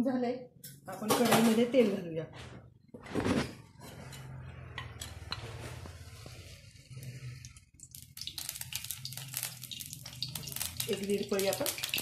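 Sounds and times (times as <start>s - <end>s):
oil crackling and spitting: 5.8s - 12.0s
oil pouring: 7.2s - 10.9s.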